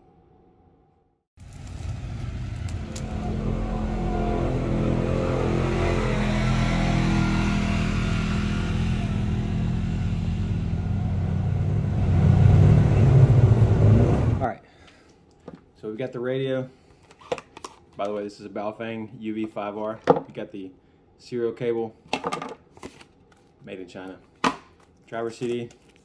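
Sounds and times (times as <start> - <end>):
car engine revving: 1.5 - 14.4.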